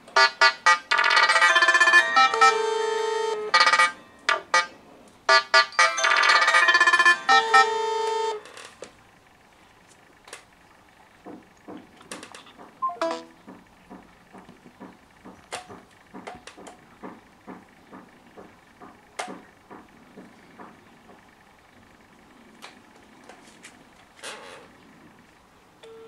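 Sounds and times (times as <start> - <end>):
phone ringtones: 0.2 - 8.8, 12.8 - 13.4
fingers tapping touchscreens: 11.6 - 18.1
short electronic tone: 12.8 - 13.4.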